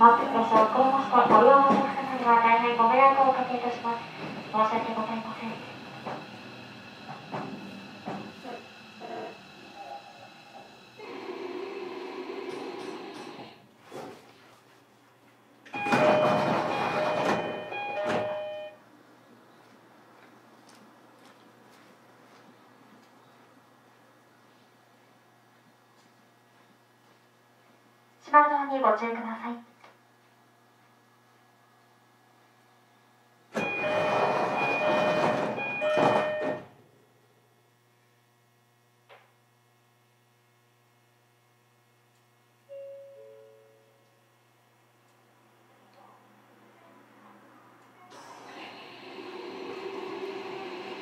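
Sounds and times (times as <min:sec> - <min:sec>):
sliding doors moving: 0:03.5 - 0:09.5, 0:15.8 - 0:18.6, 0:33.6 - 0:36.6, 0:48.1 - 0:51.0
two-note door chime: 0:15.8 - 0:18.8, 0:33.6 - 0:36.6, 0:42.7 - 0:43.9.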